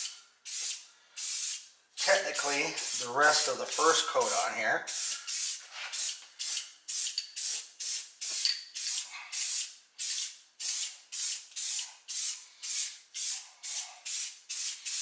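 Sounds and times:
aerosol spray can hissing: 0.0s - 15.0s.

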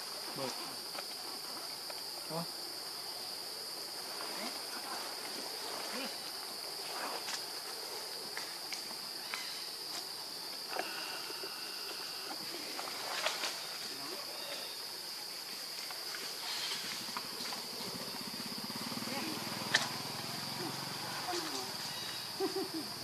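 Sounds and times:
high-pitched insect drone: 0.0s - 23.0s
monkeys rustling over leaves: 10.8s - 18.2s, 19.1s - 22.9s.

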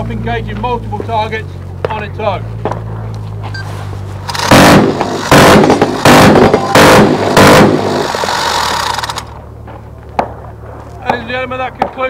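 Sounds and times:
steady low hum: 0.0s - 12.0s
minigun firing bursts: 4.2s - 9.4s.

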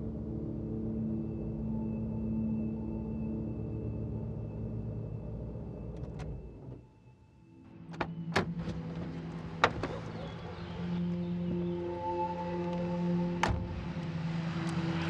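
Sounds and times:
car cabin rumble: 7.8s - 11.6s
car door handle clicks: 9.6s - 10.2s.

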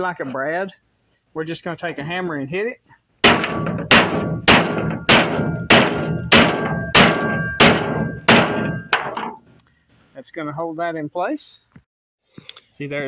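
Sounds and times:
hammer striking metal pin: 3.2s - 9.4s.

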